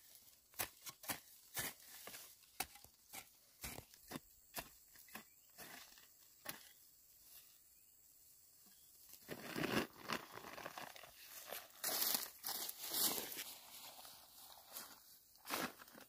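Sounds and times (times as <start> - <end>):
hoe knocking into dry soil: 0.5 - 6.8.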